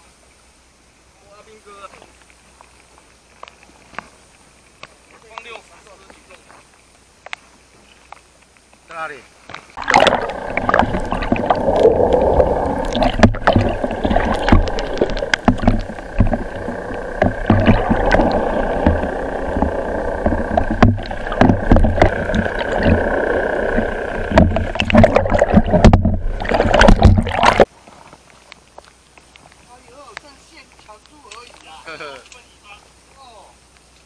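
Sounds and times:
muffled underwater water rushing: 9.7s - 27.7s
faint steady tone: 9.8s - 27.6s
low rumble: 9.8s - 27.6s.

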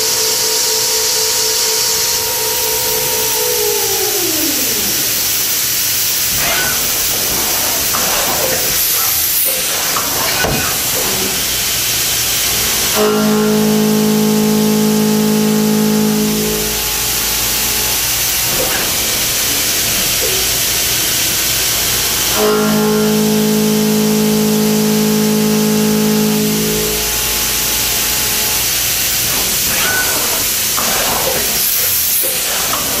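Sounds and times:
machine cutting hum: 0.0s - 33.0s
coolant spray hissing: 2.8s - 13.1s, 25.4s - 33.0s.

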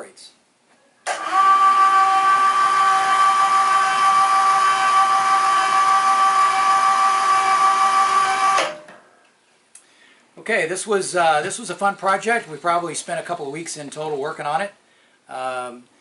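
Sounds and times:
electric hoist motor whining: 1.0s - 8.9s.

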